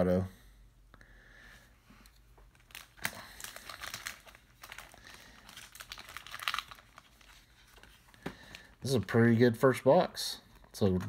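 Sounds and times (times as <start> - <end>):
thin plastic crinkling: 2.4 - 9.0.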